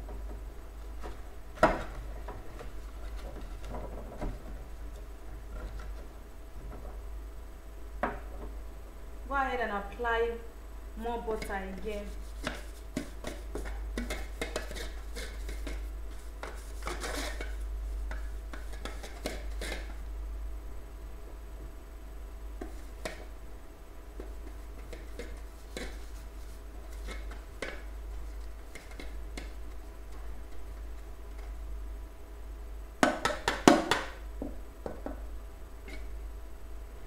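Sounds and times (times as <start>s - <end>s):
brush scraping in metal pan: 12.0s - 17.7s.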